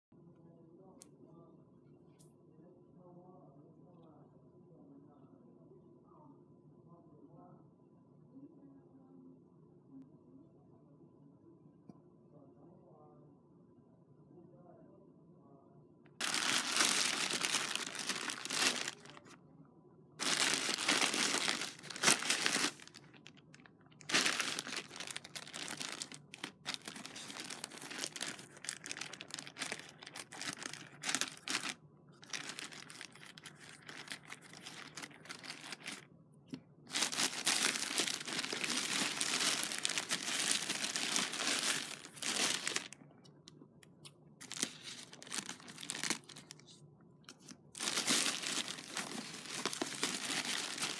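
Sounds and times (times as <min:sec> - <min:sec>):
plastic bag crinkling: 0:16.2 - 0:19.4, 0:20.2 - 0:36.0, 0:36.9 - 0:43.0, 0:44.4 - 0:46.7, 0:47.3 - 0:50.9.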